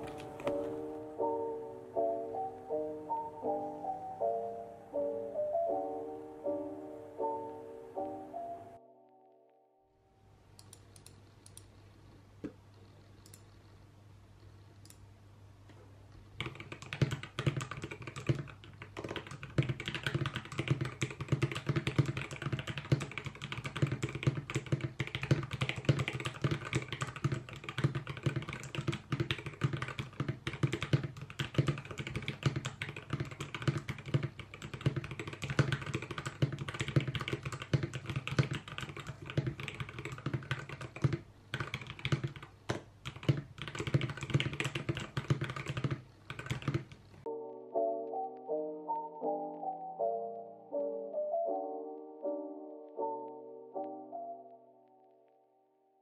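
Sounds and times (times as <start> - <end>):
mechanical keyboard typing: 16.4 - 47.0.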